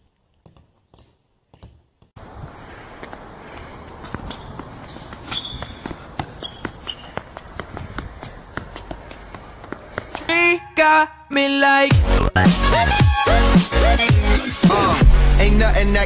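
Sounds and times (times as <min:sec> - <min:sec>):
foot tapping football: 0:04.0 - 0:10.3
footfalls on indoor court: 0:04.0 - 0:10.3
electronic music with synth tone: 0:11.9 - 0:16.0.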